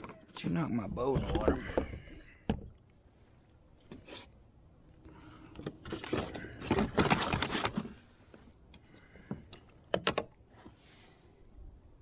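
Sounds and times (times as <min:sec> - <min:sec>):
knocks and scraping on plastic hull: 0:01.0 - 0:02.7.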